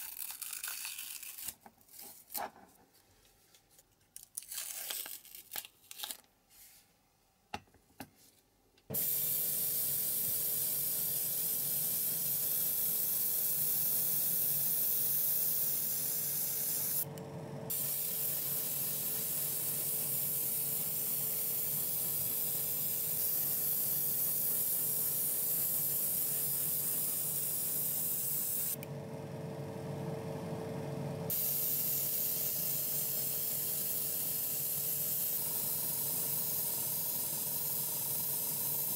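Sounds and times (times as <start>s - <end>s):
masking tape crinkling and tearing: 0.0s - 2.4s, 3.7s - 6.3s
airbrush spraying hiss: 8.9s - 17.0s, 17.7s - 28.8s, 31.3s - 38.9s.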